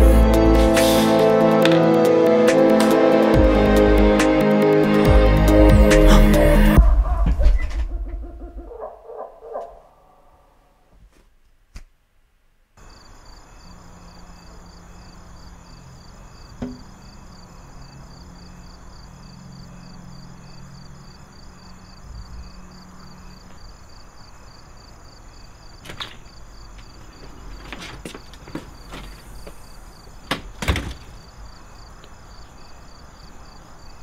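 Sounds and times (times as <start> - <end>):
low drone: 0.0 - 9.1
insects chirping: 12.8 - 34.0
door opening knocks: 16.6 - 16.9, 25.8 - 29.3, 30.3 - 31.2.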